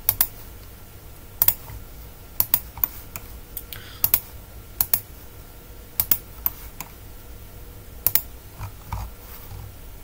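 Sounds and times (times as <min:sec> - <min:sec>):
computer mouse clicking: 0:01.4 - 0:01.7, 0:02.4 - 0:04.2, 0:04.8 - 0:05.1, 0:08.0 - 0:09.6.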